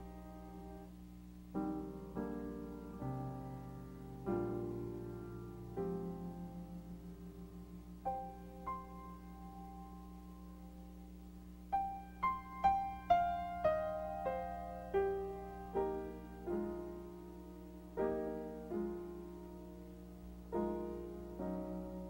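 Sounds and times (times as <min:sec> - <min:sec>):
faint low hum: 0:00.0 - 0:22.0
solo piano music: 0:00.0 - 0:22.0.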